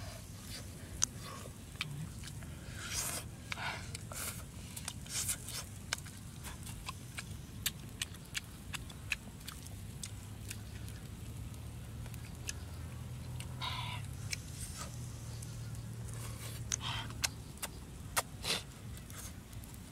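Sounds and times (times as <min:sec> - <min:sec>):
soft crunchy smears: 0:00.0 - 0:19.9
person chewing fish: 0:00.9 - 0:11.2, 0:12.0 - 0:14.9
sharp clicks and smacks: 0:16.7 - 0:18.4.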